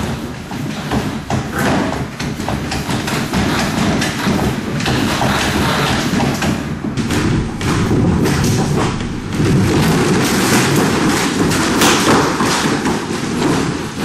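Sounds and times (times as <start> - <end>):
low rumble: 7.0 - 11.5.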